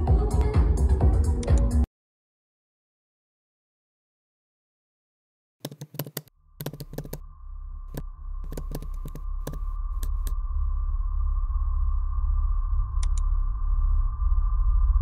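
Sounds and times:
typing on computer keyboard: 0:05.6 - 0:07.2, 0:08.5 - 0:10.3
low hum with high thin tone: 0:06.4 - 0:15.0.

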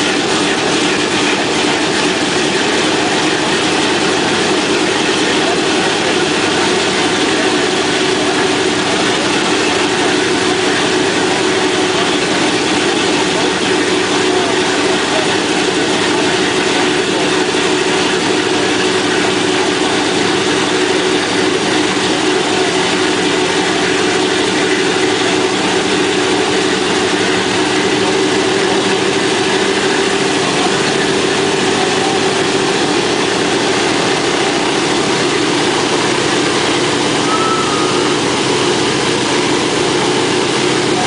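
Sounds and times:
radial aircraft engines droning: 0:24.9 - 0:41.0.

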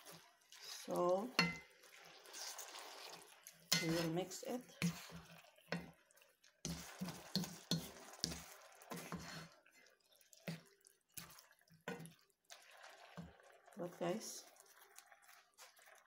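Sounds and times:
spatula scraping pan: 0:00.0 - 0:06.0, 0:06.6 - 0:10.6
spatula stirring pasta in sauce: 0:00.0 - 0:16.0.

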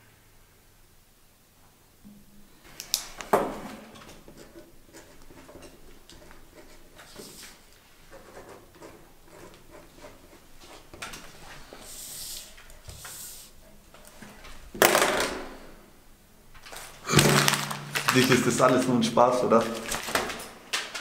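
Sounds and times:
paper crinkling: 0:16.5 - 0:21.0
paper rustling: 0:16.6 - 0:21.0.

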